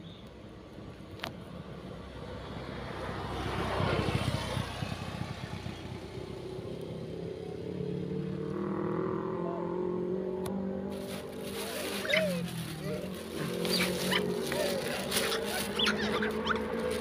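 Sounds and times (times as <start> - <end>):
motorcycle engine hum: 0.0 - 17.0
vehicle passing by: 1.5 - 17.0.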